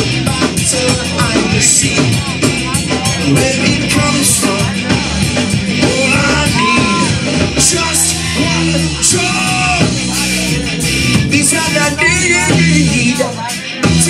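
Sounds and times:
live punk-reggae band: 0.0s - 14.0s
person singing and shouting: 0.0s - 14.0s.

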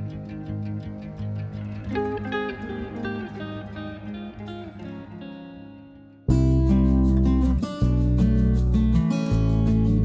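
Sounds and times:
plucked acoustic guitar music: 0.0s - 10.0s.

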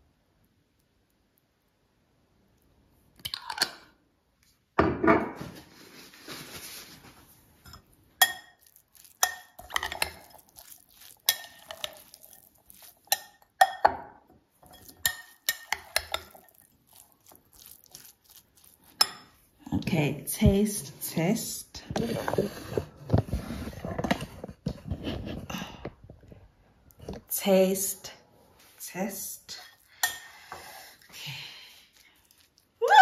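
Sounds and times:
metal utensil clinking on glass bowl: 7.7s - 14.0s, 14.6s - 16.6s.

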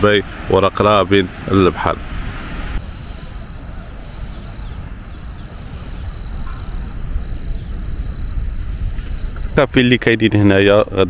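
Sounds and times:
wind rumble on microphone: 0.0s - 11.0s
high-pitched insect chirring: 2.8s - 9.7s.

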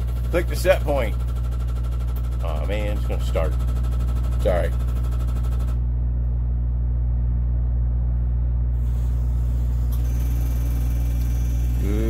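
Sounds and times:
thin high whine: 8.6s - 12.0s.

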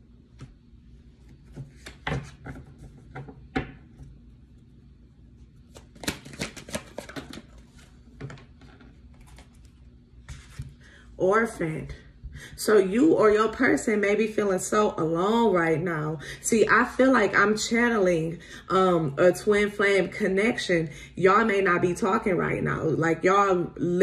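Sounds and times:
cards clicking and slapping on table: 5.7s - 7.6s.

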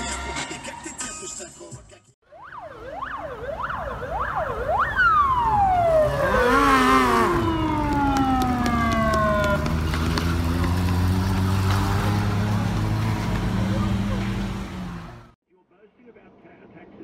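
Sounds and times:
police siren whooping and wailing: 2.2s - 9.8s
vehicle engine hum: 3.3s - 15.4s.

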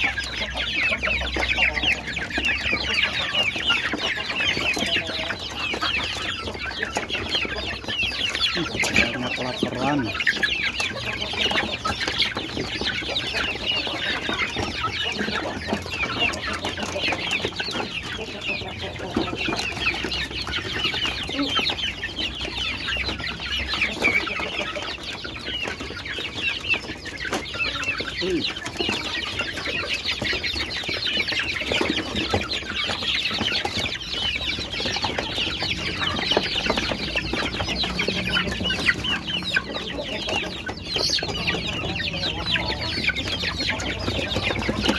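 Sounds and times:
chicks peeping and clucking: 0.0s - 44.9s.

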